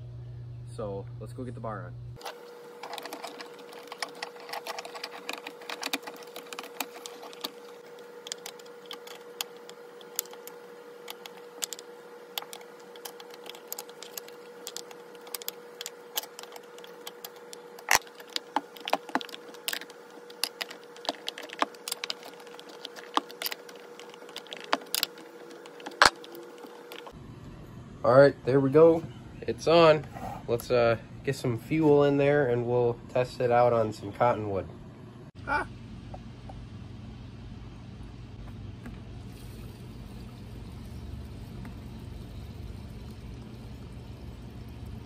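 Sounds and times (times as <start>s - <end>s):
faint steady hum: 0.0s - 45.0s.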